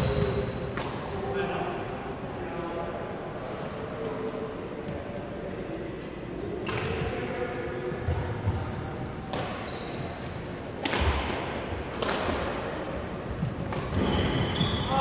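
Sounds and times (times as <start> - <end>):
shoe squeaks on wooden floor: 8.4 - 10.4, 14.0 - 15.0
rackets smacking shuttlecocks: 9.3 - 9.6, 10.8 - 12.7.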